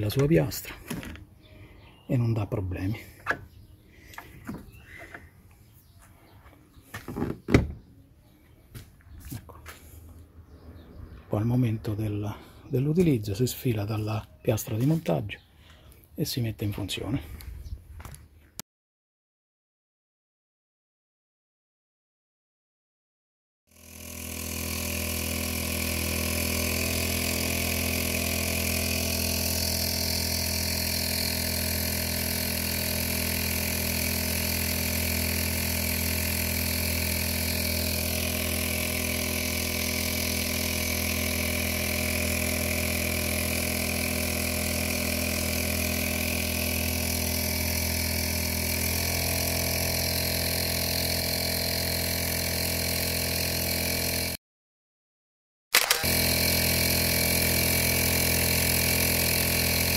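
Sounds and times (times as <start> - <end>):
outboard motor running: 3.0 - 5.9, 23.7 - 54.4, 55.8 - 59.9.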